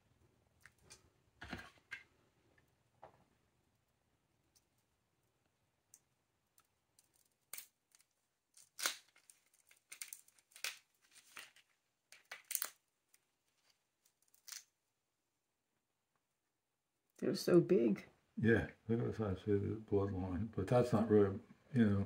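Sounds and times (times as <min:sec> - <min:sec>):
shrimp shell crackling and tearing: 0:06.6 - 0:12.8, 0:14.1 - 0:14.8.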